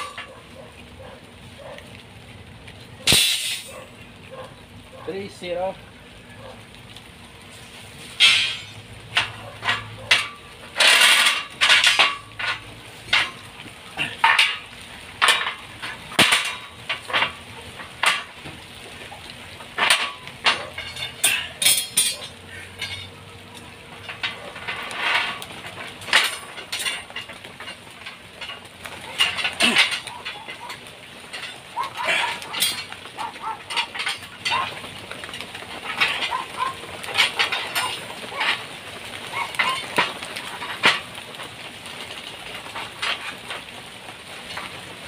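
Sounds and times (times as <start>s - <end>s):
metal knocks and clinks on steel bars: 0.0s - 0.4s, 8.2s - 18.6s, 19.6s - 38.7s, 39.3s - 41.2s
metal scraping on steel bars: 0.0s - 1.8s, 7.5s - 18.6s, 19.6s - 43.8s.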